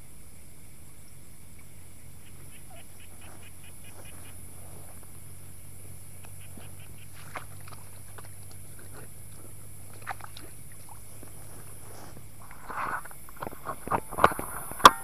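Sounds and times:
low hum: 0.0s - 15.0s
short animal calls: 2.2s - 13.1s.

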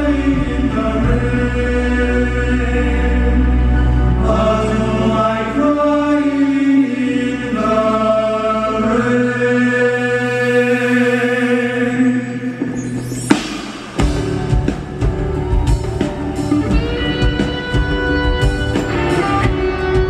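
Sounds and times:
male choir chanting: 0.0s - 12.7s.

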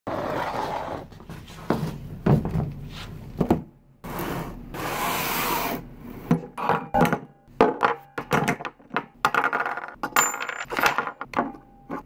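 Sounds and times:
box scraping across a tabletop: 0.1s - 1.8s, 4.0s - 5.8s.

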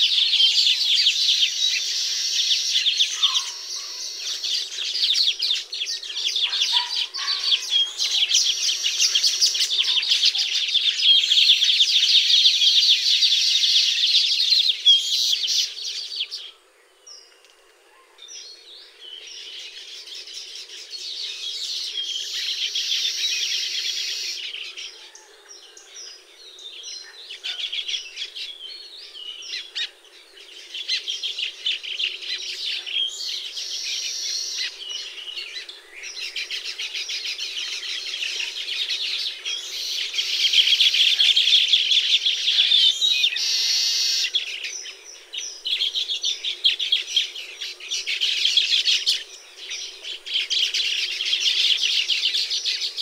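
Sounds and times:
birds chattering: 0.0s - 53.0s.

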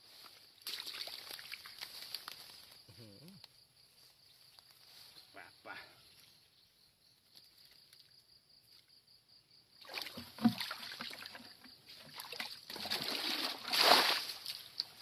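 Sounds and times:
water pouring from bucket: 9.8s - 15.0s.

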